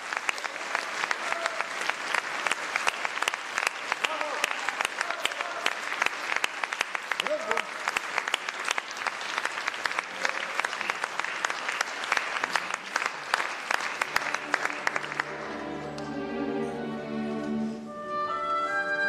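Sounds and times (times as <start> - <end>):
audience applauding: 0.0 - 16.2
orchestra sustained chords: 14.1 - 19.0.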